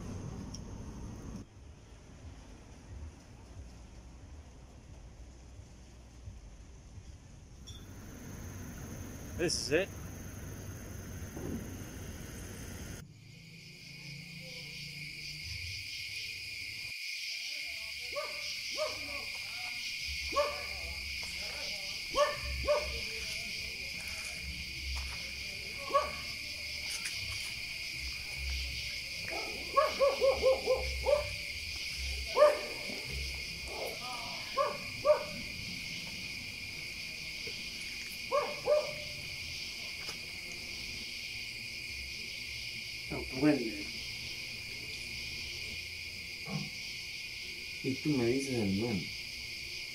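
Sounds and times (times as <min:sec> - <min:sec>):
crickets chirring: 0:00.0 - 0:01.5, 0:06.1 - 0:49.9
dog barking: 0:18.1 - 0:19.3, 0:20.3 - 0:20.9, 0:22.1 - 0:23.1, 0:25.8 - 0:26.4, 0:29.3 - 0:31.4, 0:32.2 - 0:35.5, 0:38.3 - 0:39.2.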